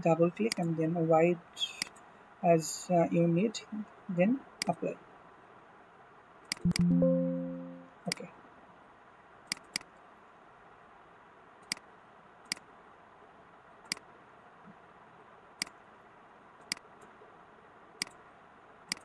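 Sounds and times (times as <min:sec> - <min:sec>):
mouse button clicks: 0:06.5 - 0:08.2.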